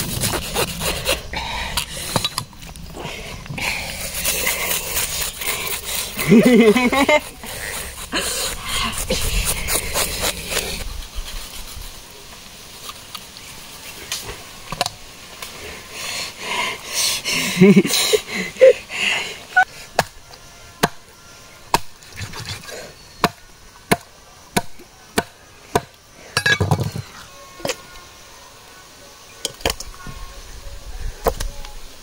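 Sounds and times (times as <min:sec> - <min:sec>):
knife scraping fish scales: 0:03.8 - 0:12.0.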